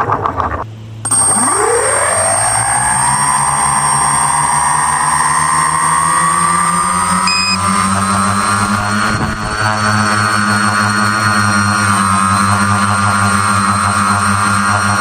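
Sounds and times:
short high beep: 1.1s - 4.0s, 7.2s - 7.8s
drone motors and propellers whining: 1.1s - 15.0s.

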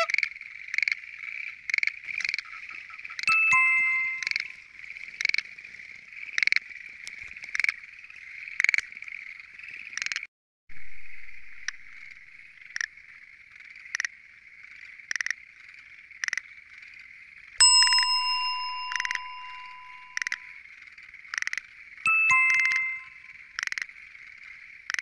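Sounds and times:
short loud frog calls: 0.0s - 3.3s
tree frog calling close by: 0.0s - 10.3s, 11.3s - 17.4s, 18.9s - 25.0s
frogs trilling: 0.0s - 25.0s.

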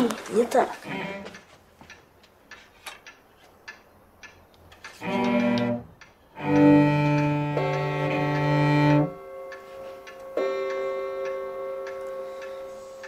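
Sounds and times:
cello held notes: 0.8s - 1.5s, 5.0s - 13.0s.

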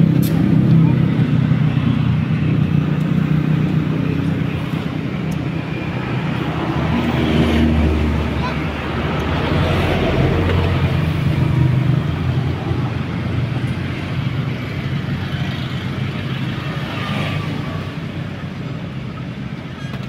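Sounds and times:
locomotive engine droning: 0.0s - 20.0s.

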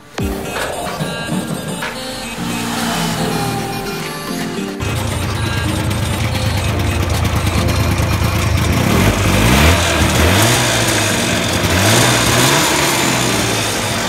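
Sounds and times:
two-stroke engine idling and revving: 4.8s - 14.0s.

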